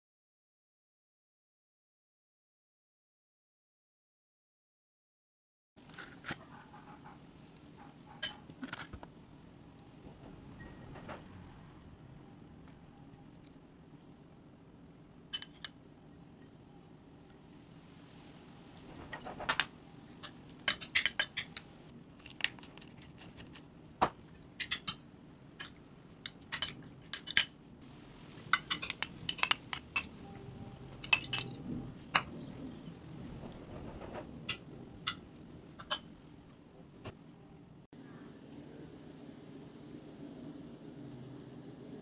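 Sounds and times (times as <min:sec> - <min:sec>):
metal spoon clinking on ceramic bowl: 0:08.2 - 0:08.5, 0:15.3 - 0:15.8, 0:20.2 - 0:21.7, 0:28.6 - 0:30.1, 0:31.0 - 0:31.6.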